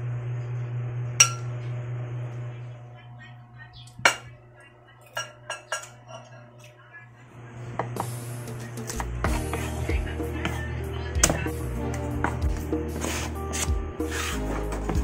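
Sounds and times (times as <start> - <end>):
steady low hum: 0.0 - 14.5
cutlery clinking on ceramic plate: 5.0 - 6.4.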